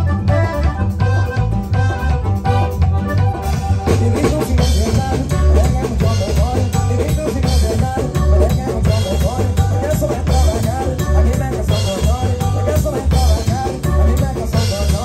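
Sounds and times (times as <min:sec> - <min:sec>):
button accordion melody: 0:00.0 - 0:15.0
drum kit beat: 0:00.0 - 0:15.0
electric bass: 0:00.0 - 0:15.0.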